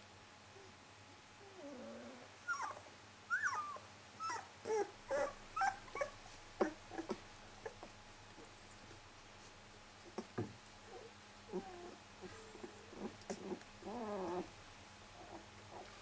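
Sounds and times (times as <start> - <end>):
puppy low grumble: 1.4 - 2.7, 10.1 - 14.6
puppy whining and yipping: 1.6 - 7.8, 10.9 - 14.5.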